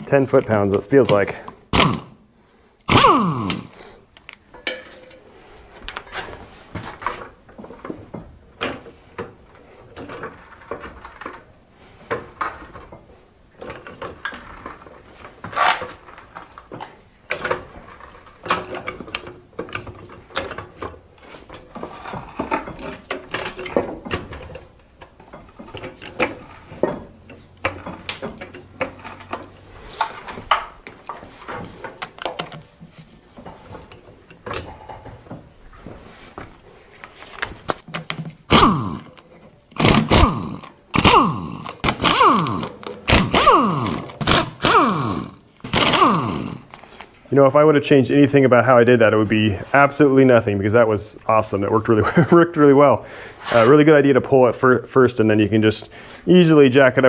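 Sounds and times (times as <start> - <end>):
socket ratchet clicking: 38.5 - 46.8.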